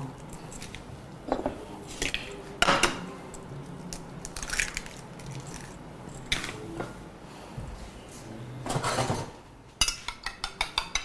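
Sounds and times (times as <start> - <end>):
eggshells cracking: 3.9 - 5.8.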